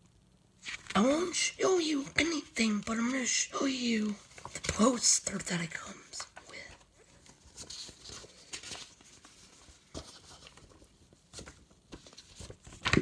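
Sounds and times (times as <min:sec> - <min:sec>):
paper rustling: 0:00.6 - 0:01.4, 0:04.0 - 0:05.4, 0:06.2 - 0:13.0.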